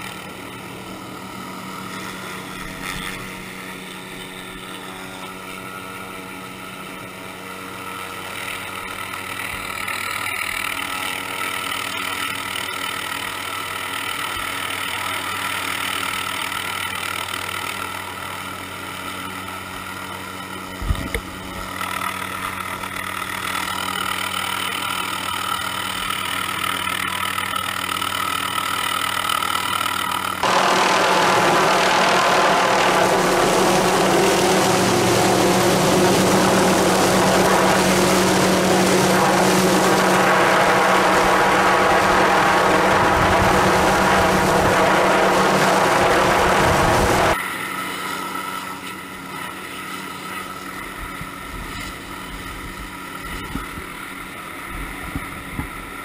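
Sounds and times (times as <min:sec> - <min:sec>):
helicopter engine and rotor: 0:00.0 - 0:51.5
wind rush: 0:30.4 - 0:47.4.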